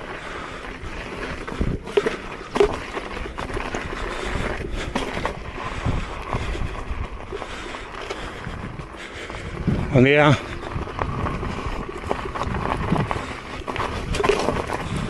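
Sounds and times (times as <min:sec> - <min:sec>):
tyre rolling on dirt: 0:00.0 - 0:15.0.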